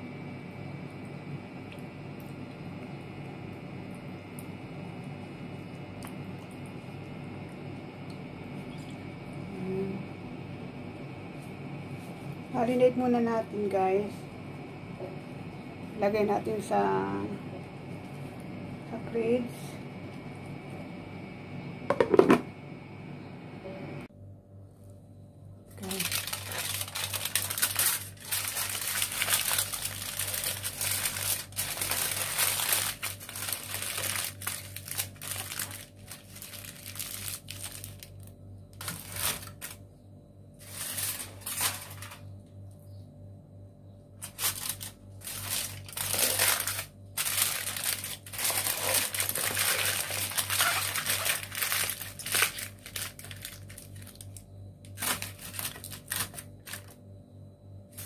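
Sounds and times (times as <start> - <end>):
steady low hum: 0.0 - 58.0
aluminium foil crinkling: 25.8 - 39.8, 40.6 - 42.3, 44.2 - 57.0.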